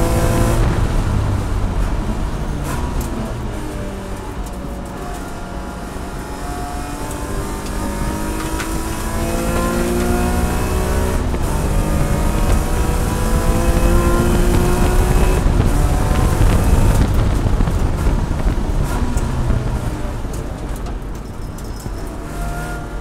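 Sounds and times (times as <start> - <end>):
race car engine revving: 0.0 - 23.0.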